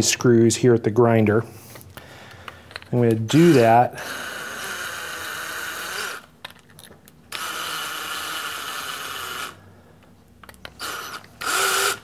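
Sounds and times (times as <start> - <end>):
cordless drill motor whining: 3.3 - 6.3, 7.3 - 9.6, 10.7 - 12.0.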